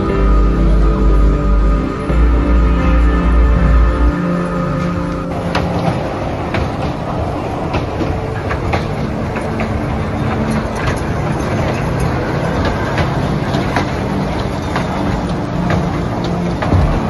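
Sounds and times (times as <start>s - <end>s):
small train ride rumbling: 0.0s - 17.0s
wheels clacking on rails: 4.1s - 17.0s.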